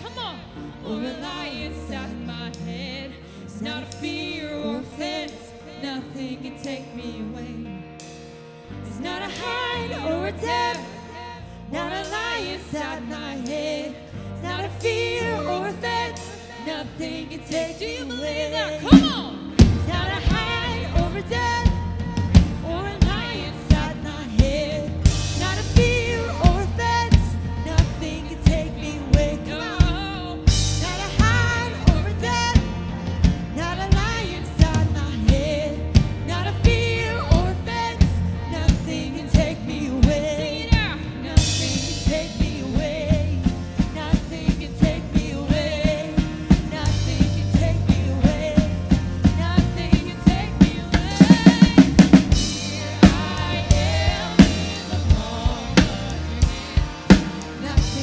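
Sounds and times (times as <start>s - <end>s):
worship band playing: 0.0s - 58.0s
person singing: 8.8s - 58.0s
drum kit beat: 18.8s - 58.0s
rapid drum roll: 41.4s - 58.0s.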